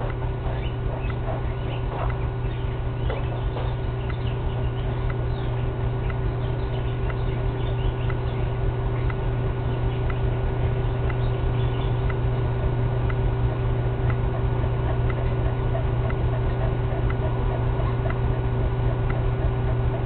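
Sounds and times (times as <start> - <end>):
soft ticking: 0.0 - 20.0
steady low hum: 0.0 - 20.0
bird chirps: 0.4 - 12.5.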